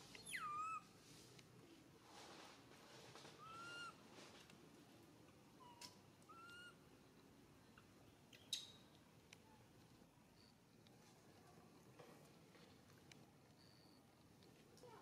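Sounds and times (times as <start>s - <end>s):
macaque coo calls: 3.4s - 4.0s, 5.7s - 6.8s.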